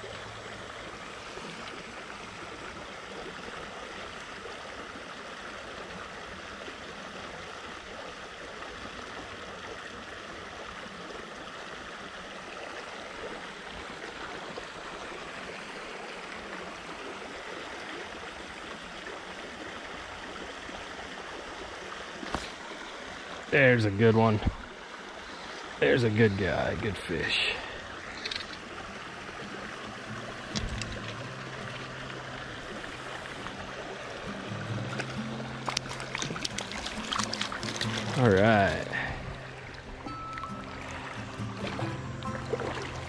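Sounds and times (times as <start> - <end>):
stream rushing over gravel: 21.4 - 43.0.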